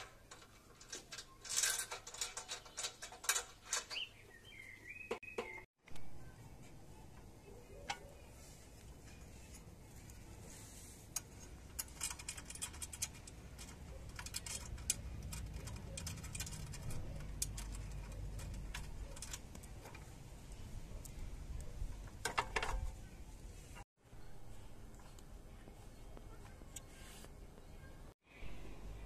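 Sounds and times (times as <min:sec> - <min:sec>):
rattling clicks: 0:00.0 - 0:04.0, 0:11.1 - 0:20.1.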